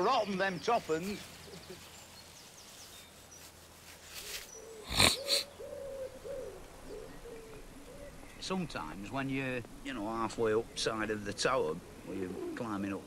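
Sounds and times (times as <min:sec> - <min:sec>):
pigeon cooing: 0:04.2 - 0:09.9, 0:11.8 - 0:13.0
person blowing nose: 0:04.8 - 0:05.5.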